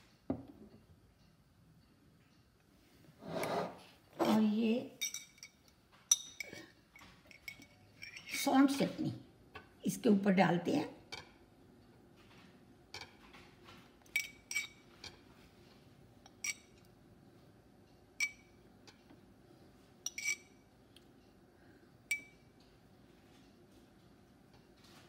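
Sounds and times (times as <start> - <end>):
metal spoon clinking on glass: 5.0 - 8.4, 14.0 - 14.8, 16.2 - 16.9, 18.2 - 19.0, 20.0 - 20.6, 22.1 - 22.5.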